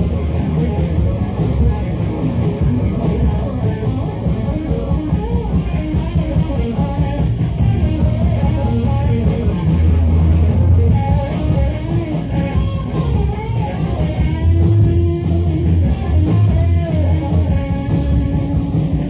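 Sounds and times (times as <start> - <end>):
blues-rock band playing live: 0.0 - 19.0
electric guitar: 0.0 - 19.0
strong bass notes: 0.0 - 19.0.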